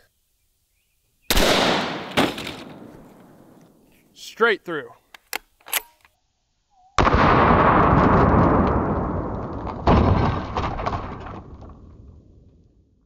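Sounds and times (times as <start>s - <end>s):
rifle shot: 1.3s - 3.6s, 7.0s - 10.7s.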